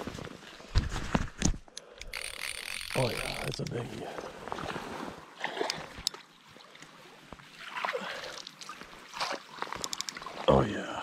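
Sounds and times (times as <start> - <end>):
water splashing and dripping: 3.0 - 10.7.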